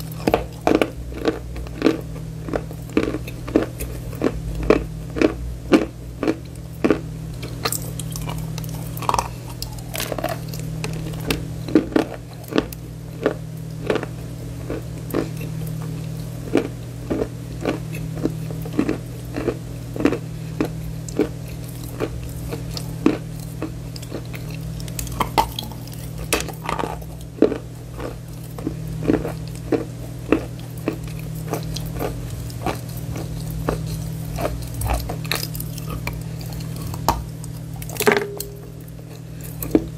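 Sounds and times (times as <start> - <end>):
person chewing crisply: 0.0 - 39.9
steady low hum: 0.0 - 39.9.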